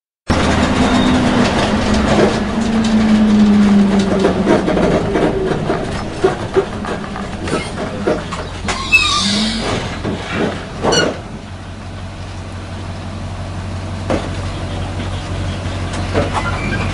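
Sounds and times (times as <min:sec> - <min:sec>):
rattling and clatter: 0:00.3 - 0:11.7
bus engine droning: 0:00.3 - 0:16.9.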